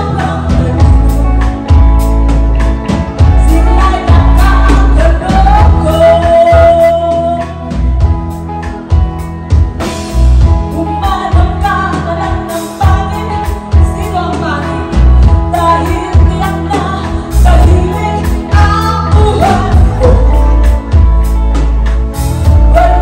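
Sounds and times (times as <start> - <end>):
woman singing: 0.0 - 2.3, 3.2 - 8.0, 10.7 - 21.2, 22.4 - 23.0
rock band playing: 0.0 - 23.0.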